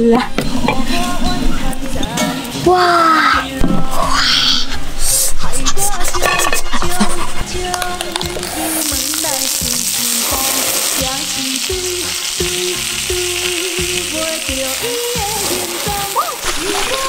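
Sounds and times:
crab legs sizzling on a griddle: 8.6 - 17.0.

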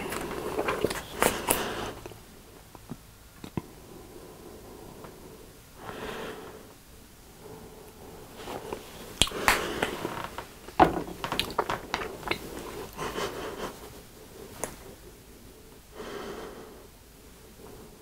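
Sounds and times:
plastic bottles clicking and knocking: 10.8 - 12.6.

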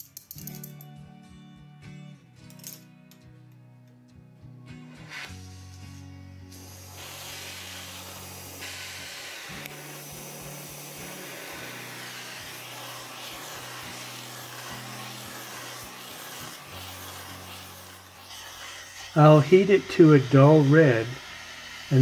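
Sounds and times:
gas torch flame hissing: 5.0 - 22.0.

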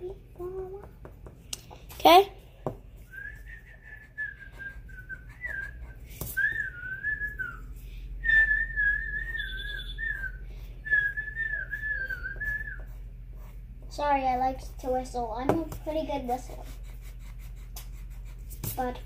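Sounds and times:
person whistling: 3.1 - 12.9.

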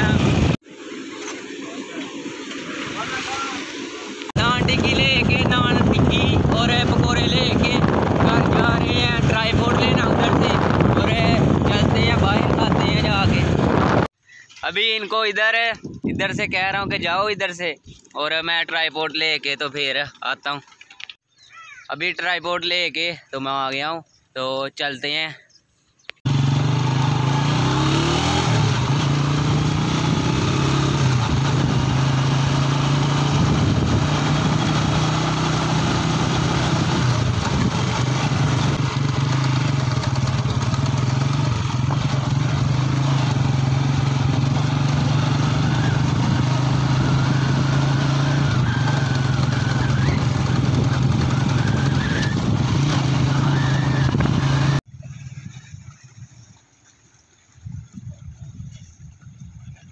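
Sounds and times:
wind noise on microphone: 0.0 - 0.6, 4.4 - 14.1, 15.7 - 18.1, 26.7 - 56.8, 57.4 - 59.9
motorcycle engine running: 26.3 - 54.8.

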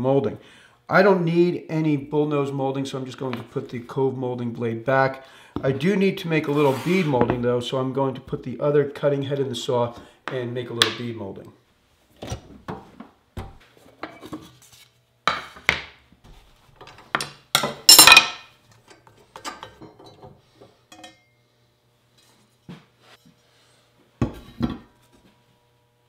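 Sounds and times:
metal tools clinking and clanking: 17.9 - 18.5, 20.9 - 21.2.

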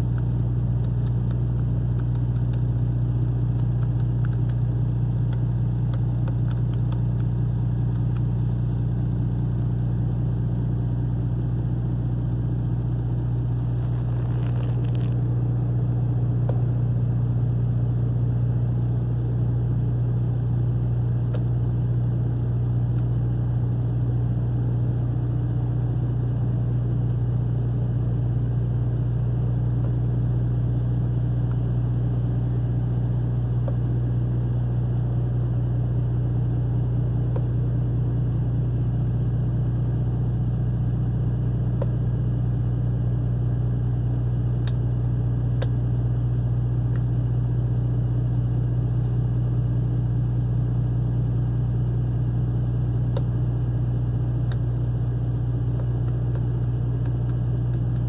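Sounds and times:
diesel engine idling: 15.2 - 58.0.

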